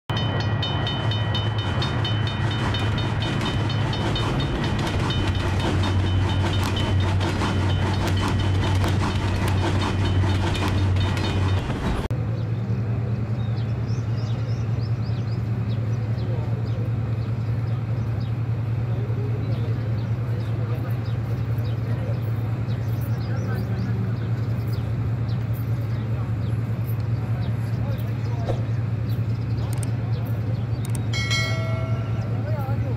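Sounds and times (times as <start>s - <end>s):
train wheels clattering: 0.1s - 12.1s.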